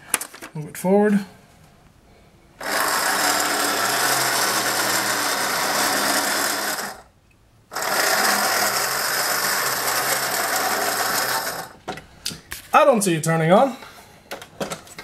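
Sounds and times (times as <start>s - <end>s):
toy truck electric motor and gears: 2.6s - 7.1s, 7.7s - 11.8s.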